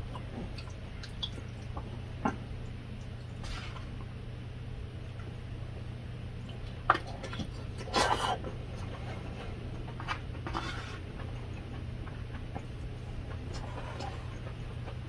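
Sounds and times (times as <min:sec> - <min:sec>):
steady low hum: 0:00.0 - 0:15.0
chewing and mouth sounds: 0:06.4 - 0:15.0
spoon scraping plastic tray: 0:10.0 - 0:11.2.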